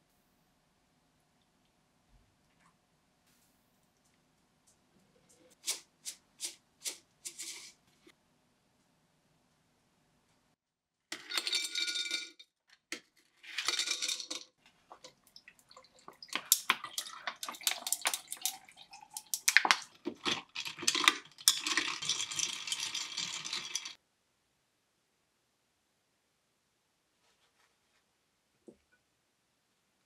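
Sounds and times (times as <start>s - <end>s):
ice rattling against glass: 11.1s - 12.4s, 13.4s - 24.0s
ice cubes clicking in a glass: 11.2s - 12.4s, 13.6s - 15.1s, 15.8s - 24.0s
drink pouring: 13.6s - 24.0s.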